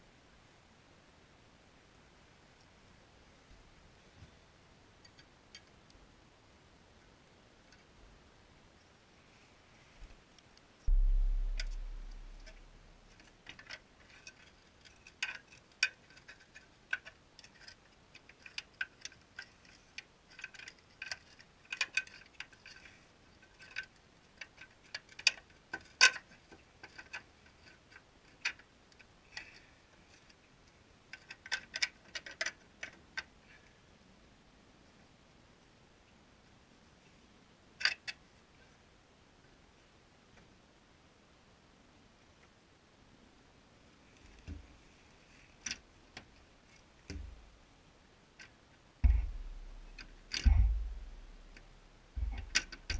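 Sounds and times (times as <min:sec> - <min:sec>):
deep thump: 0:10.9 - 0:13.1, 0:49.0 - 0:51.6, 0:52.2 - 0:52.9
metallic clicks and taps: 0:10.9 - 0:14.4, 0:48.4 - 0:52.9.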